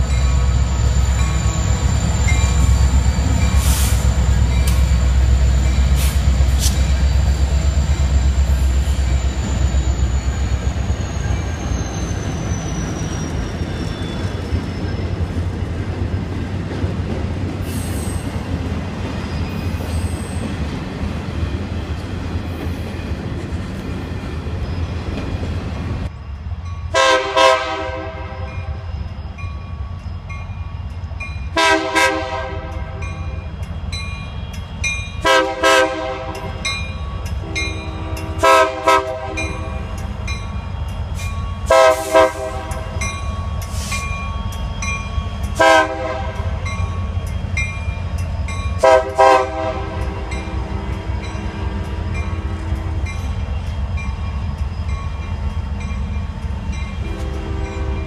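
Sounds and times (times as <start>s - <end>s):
diesel locomotive rumble: 0.0s - 58.0s
train air horn blasts: 27.0s - 28.8s, 31.6s - 33.1s, 35.2s - 36.6s, 37.4s - 39.8s, 41.7s - 42.9s, 45.6s - 46.6s, 48.8s - 53.1s, 57.0s - 58.0s.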